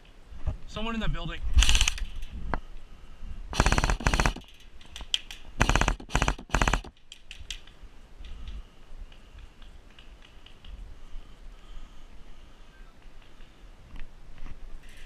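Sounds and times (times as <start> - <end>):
airsoft rifle rapid shots: 3.5 - 4.5, 5.6 - 7.0
faint clicks: 6.8 - 10.8.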